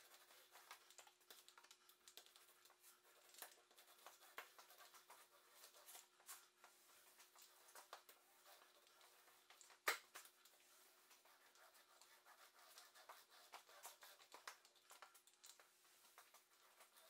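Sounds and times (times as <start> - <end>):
brush scratching on wood: 10.6 - 14.7.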